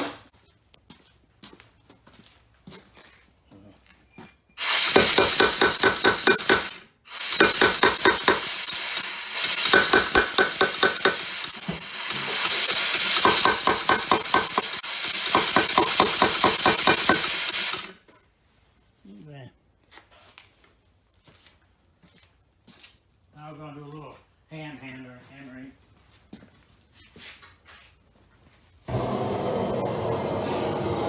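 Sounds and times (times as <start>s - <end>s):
air hissing: 4.6s - 18.0s
power hammer pounding steel: 4.6s - 18.0s.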